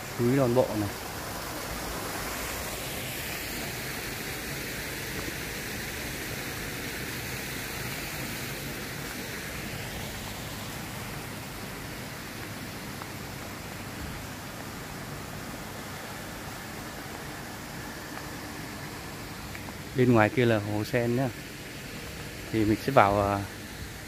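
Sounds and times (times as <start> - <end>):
rushing falling water: 0.0 - 24.0.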